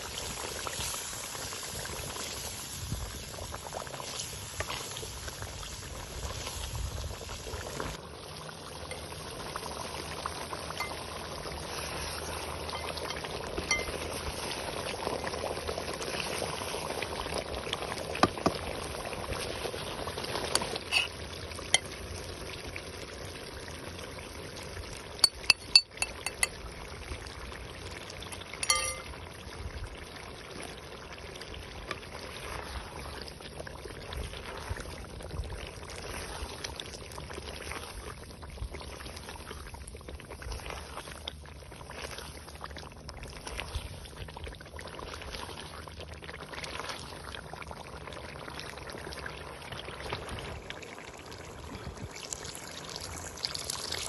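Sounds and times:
food bubbling and sizzling: 0.0s - 54.0s
sharp clinks against a pot: 12.7s - 14.0s, 25.2s - 26.6s, 28.6s - 29.1s.

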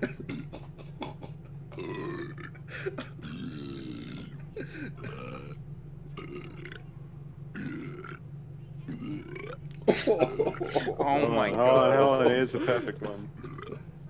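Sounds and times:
steady low hum: 0.0s - 14.0s
long belches: 1.8s - 2.6s, 3.2s - 4.4s, 5.0s - 5.6s, 6.2s - 6.8s, 7.6s - 8.2s, 8.9s - 9.6s, 13.4s - 13.8s.

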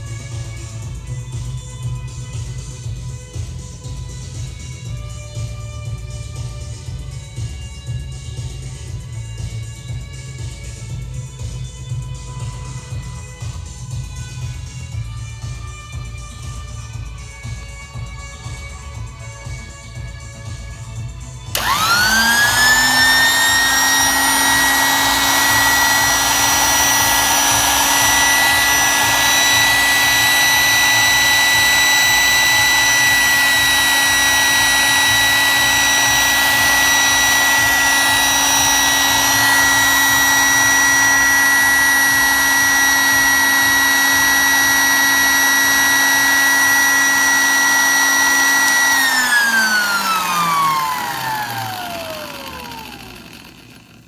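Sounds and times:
electric drill whining: 13.0s - 54.0s.

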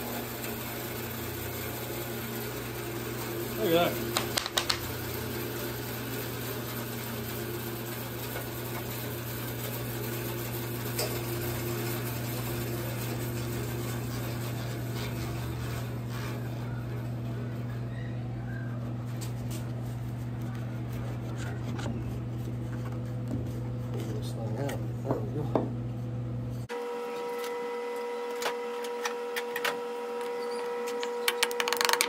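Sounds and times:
bandsaw motor running: 0.0s - 22.2s.

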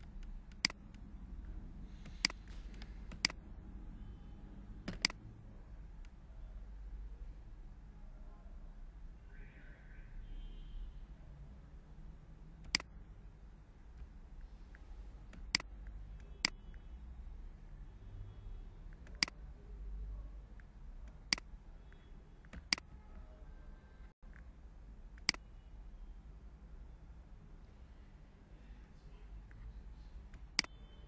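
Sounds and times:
computer mouse clicking: 0.0s - 1.1s, 2.0s - 3.4s, 4.9s - 5.2s, 12.6s - 12.9s, 14.7s - 16.6s, 22.4s - 23.0s, 25.2s - 25.4s
faint low hum: 0.0s - 31.0s.

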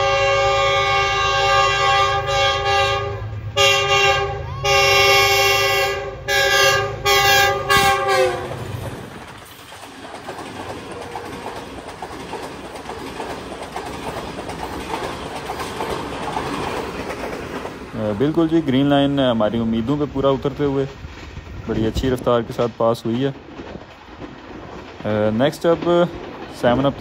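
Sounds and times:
locomotive horn blasts: 0.0s - 8.6s
train wheels rattling past: 0.0s - 27.0s.

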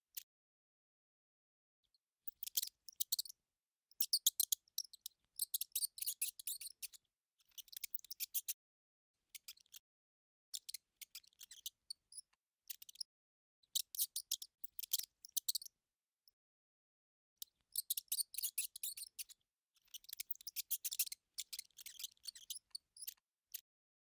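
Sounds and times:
mouse squeaking and chittering: 2.2s - 8.6s, 9.3s - 9.9s, 10.5s - 13.1s, 13.7s - 15.7s, 17.4s - 23.7s.

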